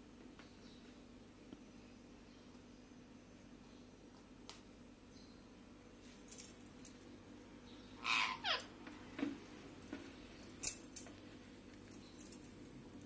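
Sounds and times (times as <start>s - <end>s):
parakeet call: 8.0s - 8.7s.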